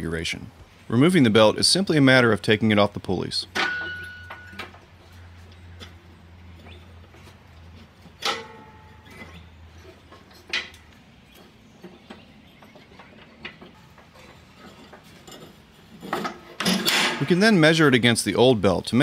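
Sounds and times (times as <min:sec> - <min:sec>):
metallic clacks with ringing: 0:03.5 - 0:04.8, 0:08.2 - 0:09.4.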